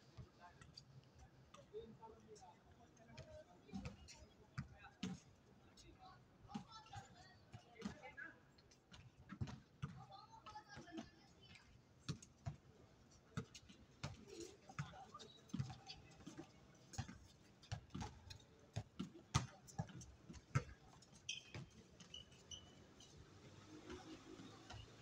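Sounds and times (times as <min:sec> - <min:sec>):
basketball bouncing on hard court: 0:18.8 - 0:20.8.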